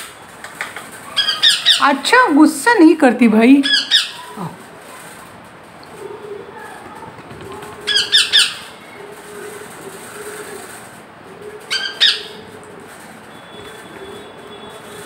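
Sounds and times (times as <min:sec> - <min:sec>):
parakeet squawking: 0:01.1 - 0:02.0, 0:03.6 - 0:04.5, 0:07.8 - 0:09.0, 0:11.7 - 0:12.5.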